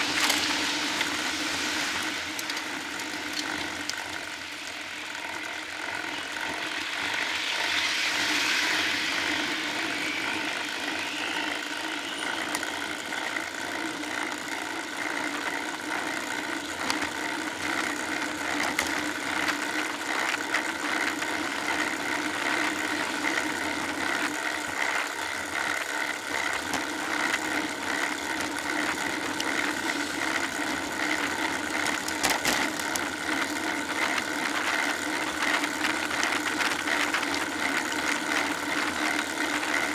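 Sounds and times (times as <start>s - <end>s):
bicycle road and drivetrain noise: 0.0s - 39.9s
small clicks and rattles: 2.0s - 4.3s, 14.8s - 39.9s.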